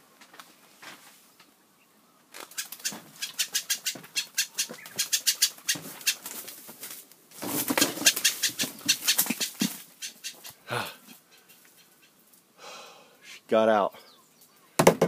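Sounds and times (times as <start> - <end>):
bird flapping wings: 2.3 - 10.4.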